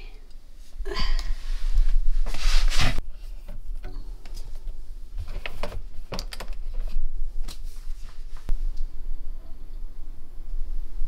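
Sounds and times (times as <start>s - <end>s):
plastic and cable clicking: 5.3s - 6.7s.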